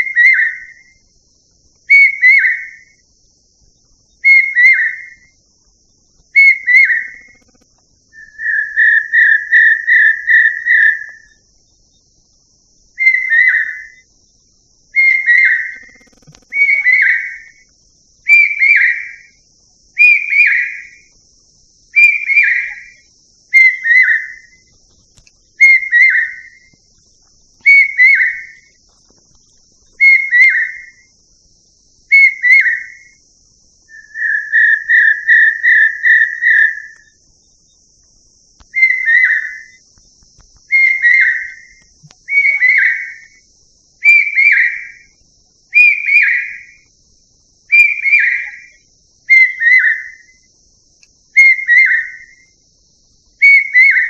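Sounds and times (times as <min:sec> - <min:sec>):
bird whistled call: 0:00.0 - 0:01.0, 0:01.9 - 0:03.0, 0:04.2 - 0:05.3, 0:06.4 - 0:07.5, 0:08.1 - 0:11.4, 0:13.0 - 0:14.0, 0:14.9 - 0:17.6, 0:18.2 - 0:19.4, 0:20.0 - 0:21.1, 0:22.0 - 0:24.6, 0:25.6 - 0:26.7, 0:27.6 - 0:28.8, 0:30.0 - 0:31.1, 0:32.1 - 0:33.2, 0:33.9 - 0:37.2, 0:38.7 - 0:39.8, 0:40.7 - 0:43.4, 0:44.0 - 0:45.1, 0:45.7 - 0:46.8, 0:47.7 - 0:50.5, 0:51.4 - 0:52.5, 0:53.4 - 0:54.0.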